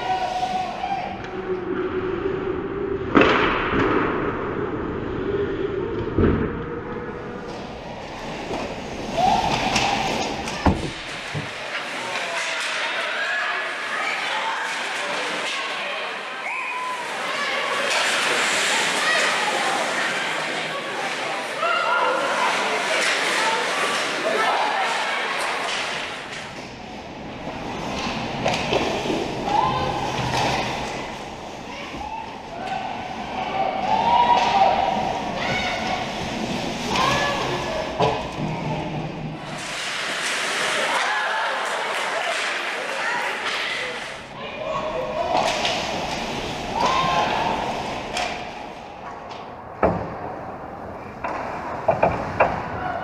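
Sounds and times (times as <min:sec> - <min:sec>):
steady rink hum: 0:00.0 - 0:53.0
puck and sticks striking: 0:03.1 - 0:04.2, 0:50.9 - 0:52.8
skates scraping ice: 0:07.4 - 0:49.0
skate scrapes: 0:17.0 - 0:26.6, 0:35.4 - 0:41.0.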